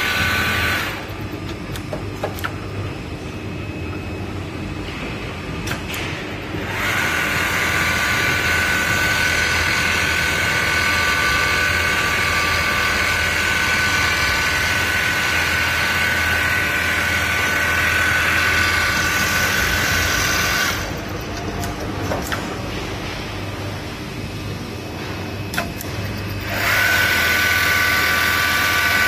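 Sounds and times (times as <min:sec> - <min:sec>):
sewing machine whining: 0:00.0 - 0:01.1, 0:06.5 - 0:21.7, 0:26.4 - 0:29.0.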